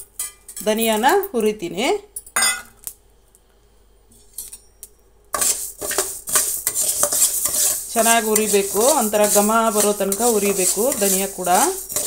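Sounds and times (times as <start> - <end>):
seeds rattling in pan: 5.4 - 12.0
spatula scraping metal pan: 5.4 - 12.0.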